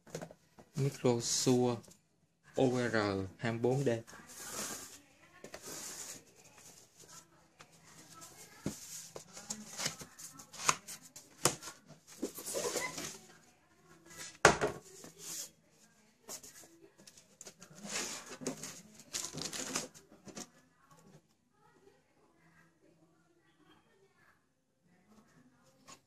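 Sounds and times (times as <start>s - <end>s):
cardboard rustling and scraping: 3.7s - 13.4s, 14.1s - 15.6s, 17.4s - 20.5s.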